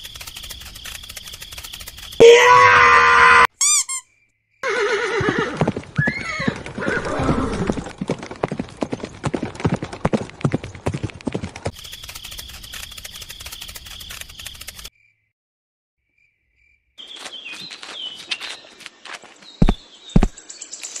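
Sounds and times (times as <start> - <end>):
crickets chirping: 0.0 - 2.2, 11.7 - 15.2
horse whinnying: 4.6 - 7.9
hooves clip-clopping: 5.2 - 14.9.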